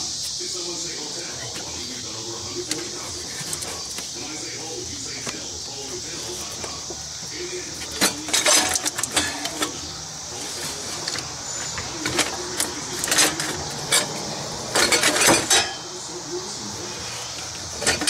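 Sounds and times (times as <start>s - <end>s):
metal clanks and rattles: 7.8s - 9.9s, 10.6s - 15.9s, 17.5s - 18.0s.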